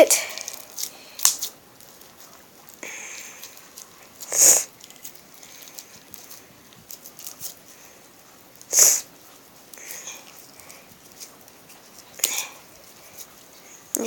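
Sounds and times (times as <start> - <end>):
short hissing burst: 4.3 - 4.7.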